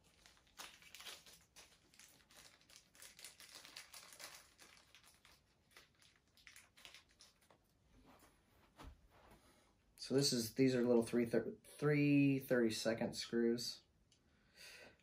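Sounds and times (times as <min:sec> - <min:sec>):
plastic bag crinkling: 0:00.0 - 0:07.7.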